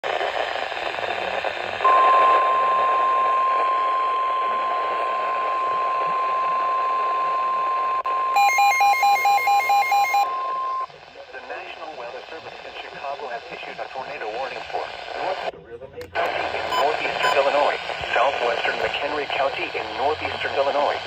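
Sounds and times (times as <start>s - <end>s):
radio hiss: 0.0s - 8.1s, 9.6s - 21.0s
steady high alarm tone: 1.8s - 10.9s
fast electronic beeps: 16.6s - 17.6s.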